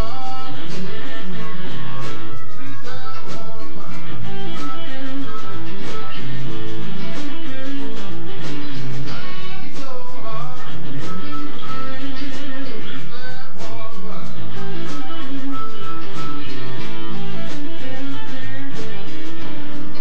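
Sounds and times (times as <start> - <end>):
live blues band playing: 0.0 - 20.0.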